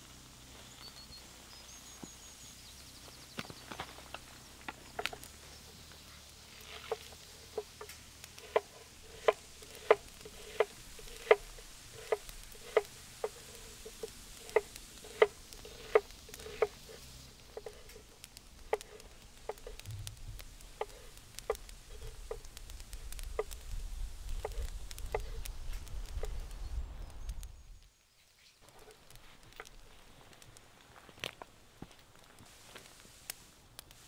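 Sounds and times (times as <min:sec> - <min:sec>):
low rumble: 0:18.5 - 0:27.6.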